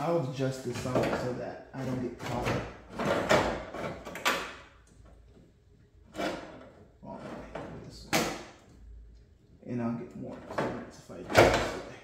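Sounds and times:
metal parts scraping and knocking: 0.6s - 4.5s.

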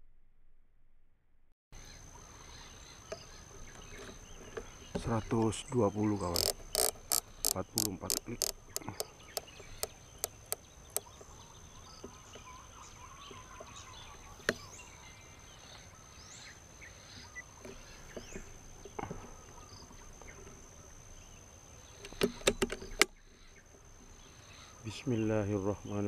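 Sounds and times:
faint bird chirps: 1.8s - 26.0s
scope turret clicking: 6.2s - 11.1s.

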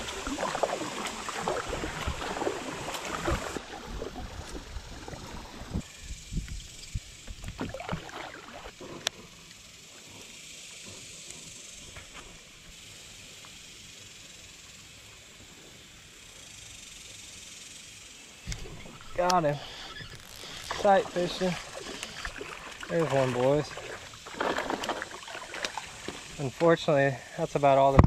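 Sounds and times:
feet wading through water: 0.0s - 5.8s, 7.3s - 8.8s, 18.6s - 26.6s
faint hiss of moving water: 0.0s - 28.0s.

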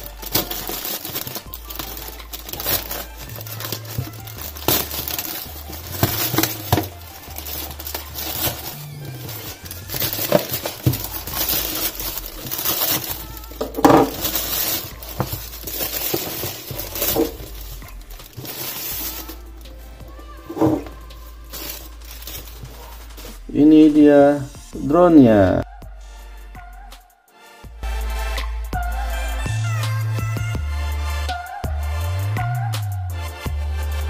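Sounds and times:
plastic bag crinkling and tearing: 0.0s - 23.5s.

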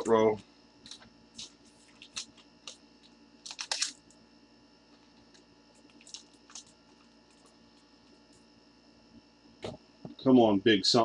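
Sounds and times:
low electrical hum: 0.0s - 11.0s
rustling clicks of packaging: 3.4s - 4.0s.

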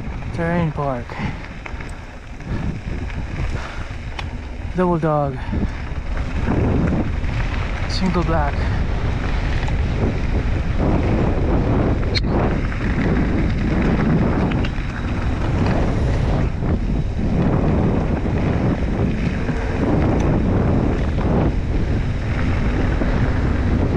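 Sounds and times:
wind buffeting microphone: 0.0s - 23.9s.

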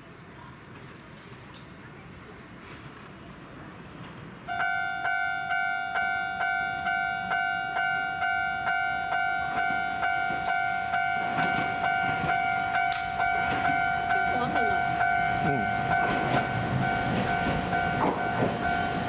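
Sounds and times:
tram rumbling and rattling: 0.1s - 19.0s
level crossing warning bell: 4.5s - 19.0s.

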